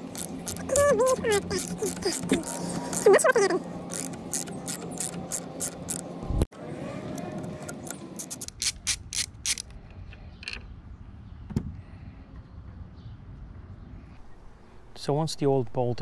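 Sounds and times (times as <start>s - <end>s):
ratchet clicking: 0.0s - 3.2s, 3.9s - 6.0s, 7.8s - 9.7s
sharp metallic click: 7.6s - 9.7s.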